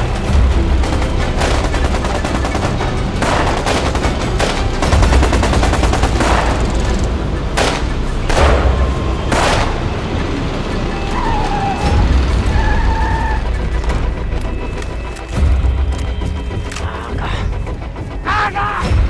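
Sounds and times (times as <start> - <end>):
machine-gun fire: 0.8 - 9.9.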